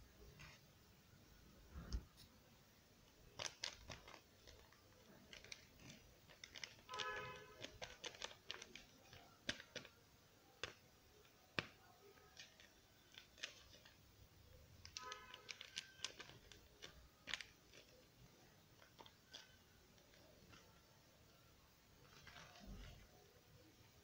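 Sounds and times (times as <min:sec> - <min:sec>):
foil packet crinkling: 0:03.3 - 0:10.0, 0:10.6 - 0:14.0, 0:14.8 - 0:20.8, 0:22.0 - 0:23.1.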